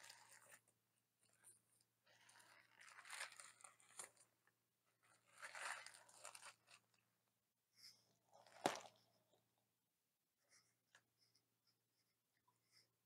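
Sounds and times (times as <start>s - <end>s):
paper wrapper crinkling: 2.3s - 4.2s, 5.3s - 6.9s.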